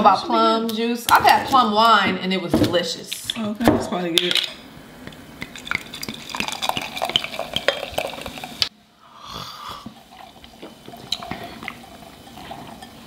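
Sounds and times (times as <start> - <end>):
fizzy juice pouring into glass: 5.5 - 8.7, 9.9 - 13.0.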